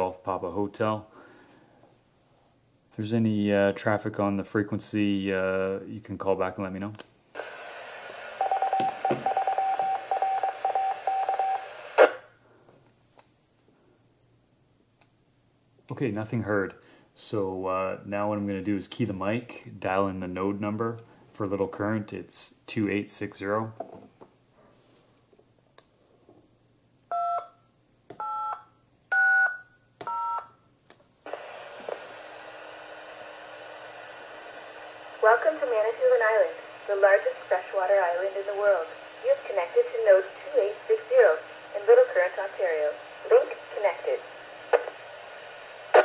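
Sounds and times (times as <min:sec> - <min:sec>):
radio carrier hiss: 0:07.4 - 0:12.3, 0:31.2 - 0:46.0
morse code beeps: 0:08.4 - 0:11.7, 0:28.2 - 0:30.6.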